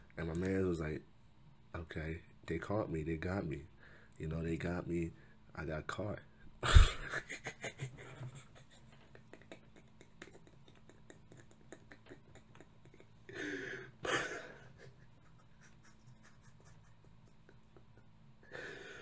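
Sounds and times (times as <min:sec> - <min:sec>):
man laughing breathily: 0:06.6 - 0:19.0
scratchy rustling: 0:15.2 - 0:17.2.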